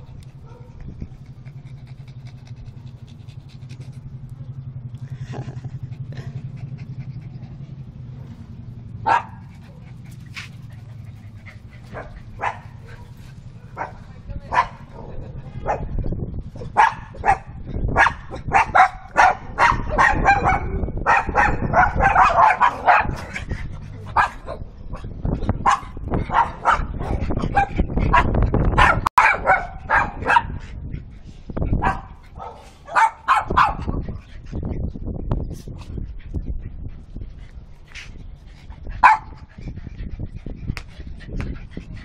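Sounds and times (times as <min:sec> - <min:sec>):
small dogs barking: 0:09.0 - 0:16.0, 0:16.6 - 0:30.7, 0:31.7 - 0:34.1, 0:39.0 - 0:39.5.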